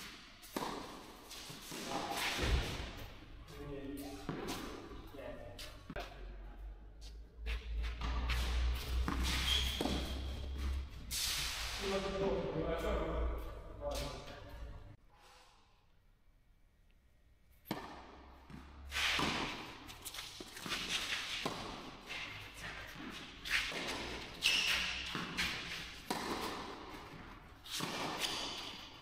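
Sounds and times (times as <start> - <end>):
racket hitting tennis ball: 0.0 - 3.1, 4.2 - 4.9, 8.0 - 11.1, 17.6 - 29.0
tennis ball bouncing: 0.4 - 2.8, 8.9 - 10.4, 17.6 - 22.0, 22.8 - 29.0.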